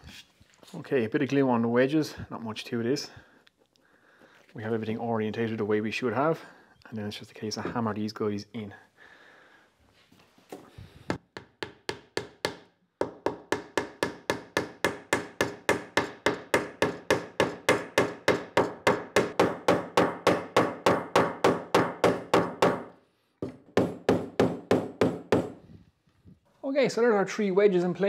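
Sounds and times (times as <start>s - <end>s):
hammer driving wooden wedges: 11.1s - 25.6s.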